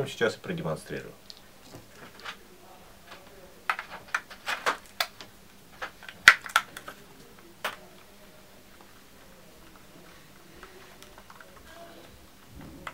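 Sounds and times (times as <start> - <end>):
plastic clicks and knocks: 3.7 - 7.0.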